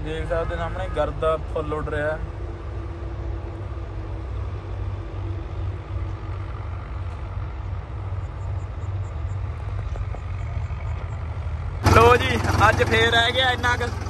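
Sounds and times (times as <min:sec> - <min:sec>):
tractor engines rumbling: 0:00.0 - 0:14.0
straw-making machinery: 0:11.8 - 0:14.0.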